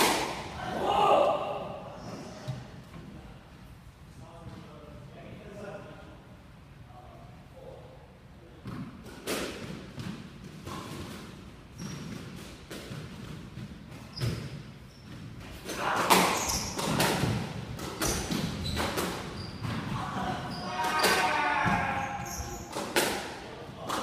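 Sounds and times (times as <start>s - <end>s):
squash ball hitting rackets and walls: 0.0s - 0.6s, 8.6s - 24.0s.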